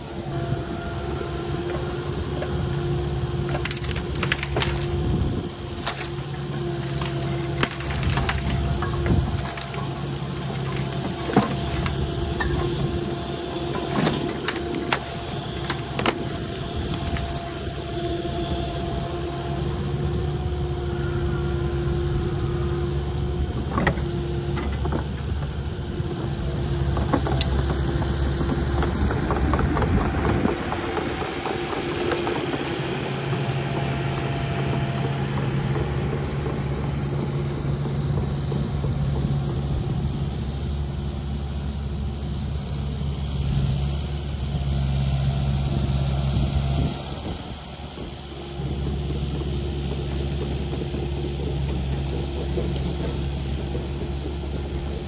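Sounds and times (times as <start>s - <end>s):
excavator diesel engine running: 0.0s - 55.0s
crunching and crackling: 1.4s - 20.4s.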